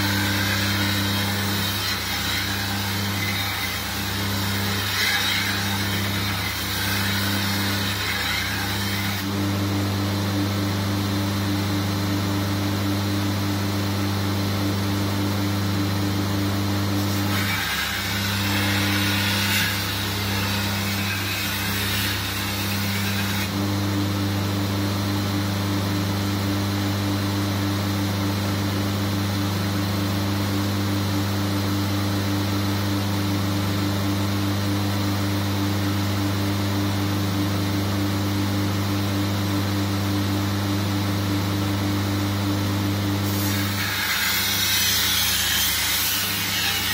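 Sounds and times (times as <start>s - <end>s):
belt grinder motor hum: 0.0s - 10.7s, 15.2s - 24.0s
steel grinding hiss: 43.2s - 46.9s.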